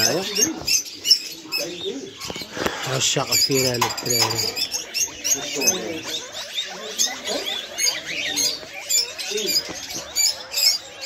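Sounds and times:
mice squeaking: 0.0s - 11.0s.

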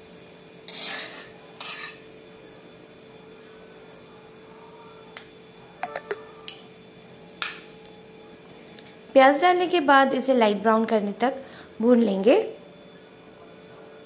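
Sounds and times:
spices frying in hot oil: 0.1s - 2.2s
spatula scraping metal pan: 0.7s - 2.0s.

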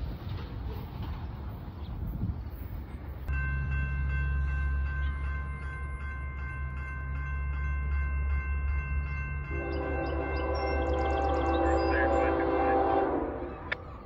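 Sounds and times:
low train rumble: 0.0s - 14.0s
crossing warning bell ringing: 3.3s - 13.8s
locomotive air horn chord: 9.5s - 13.6s.

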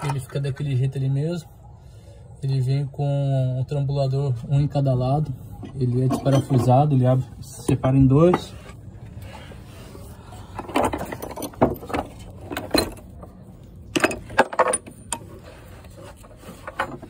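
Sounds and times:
metal sockets clinking: 5.6s - 6.8s, 10.6s - 15.4s.

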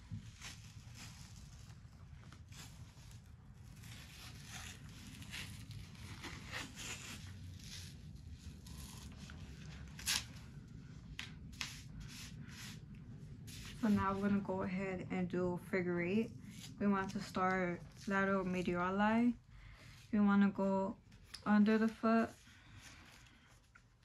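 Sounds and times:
tape ripping: 9.9s - 10.4s.

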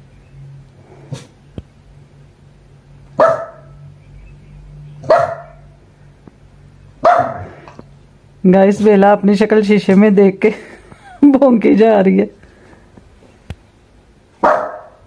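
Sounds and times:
small dog barking: 3.2s - 3.8s, 5.0s - 5.7s, 7.0s - 7.6s, 14.4s - 15.0s.

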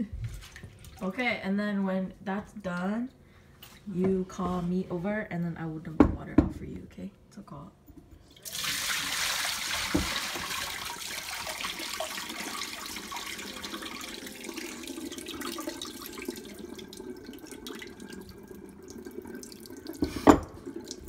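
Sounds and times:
water pouring into a sink: 8.4s - 21.0s.

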